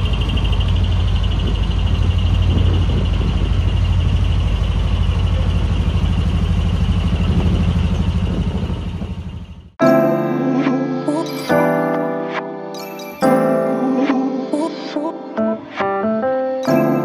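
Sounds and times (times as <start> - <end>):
truck diesel engine rumble: 0.0 - 9.8.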